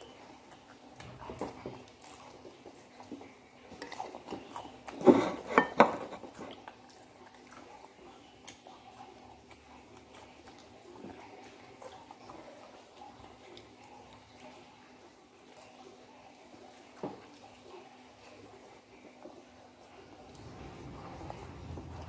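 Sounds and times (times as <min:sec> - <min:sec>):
dishes knocking: 0:05.1 - 0:06.2.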